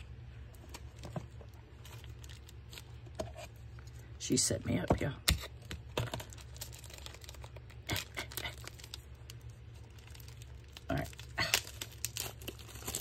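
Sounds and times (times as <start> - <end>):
low steady hum: 0.0 - 13.0
paper rustling and crinkling: 9.7 - 13.0.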